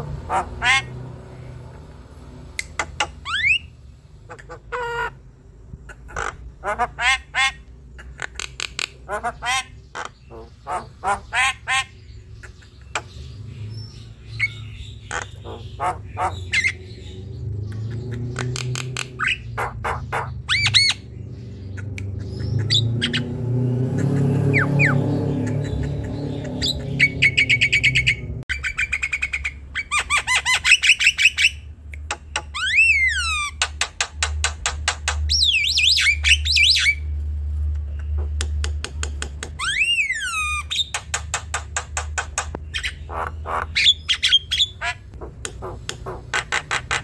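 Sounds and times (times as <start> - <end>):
myna squawking and whistling: 18.1 - 21.0, 24.0 - 31.6.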